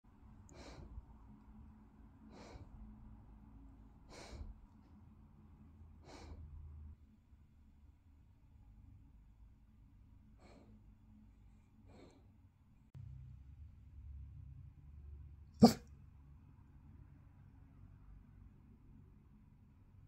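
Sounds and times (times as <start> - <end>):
dog breathing through nose: 0.5 - 1.0, 2.3 - 2.8, 4.1 - 4.6, 6.0 - 6.5, 10.4 - 10.8, 11.8 - 12.3.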